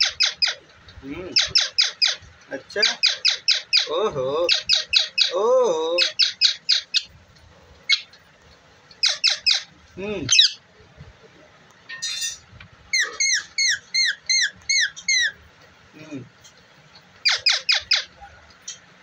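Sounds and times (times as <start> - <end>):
parakeet chirping: 0.0 - 0.7, 1.3 - 7.2, 7.8 - 8.2, 8.9 - 10.6, 12.0 - 15.4, 17.2 - 18.2
parakeet squawk: 0.0 - 0.7, 1.3 - 7.1, 7.9 - 8.1, 9.0 - 9.7, 10.3 - 10.6, 12.9 - 15.4, 17.2 - 18.2.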